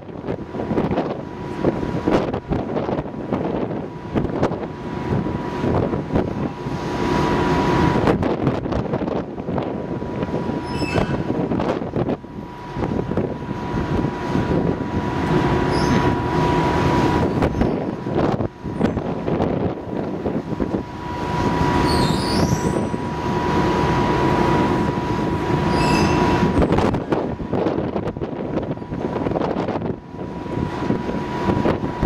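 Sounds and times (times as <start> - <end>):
machinery rumble: 0.0 - 32.0
thin whine: 10.3 - 28.1.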